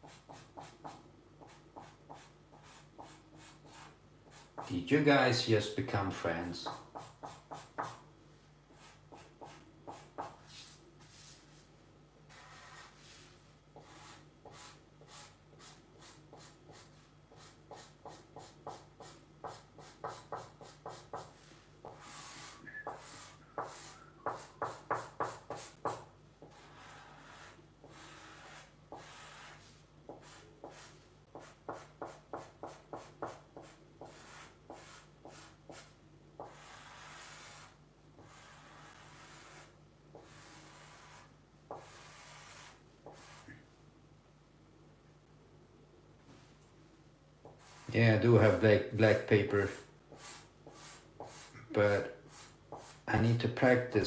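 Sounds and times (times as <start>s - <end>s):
marker rubbing on paper: 0.0s - 4.7s, 6.6s - 8.0s, 8.7s - 11.6s, 12.3s - 43.6s, 47.4s - 48.0s, 49.5s - 51.6s, 52.2s - 53.1s.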